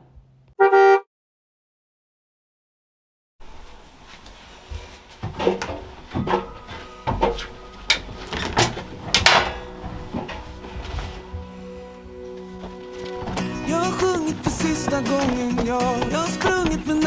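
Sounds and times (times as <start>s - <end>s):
fabric rustling: 9.7s - 13.4s.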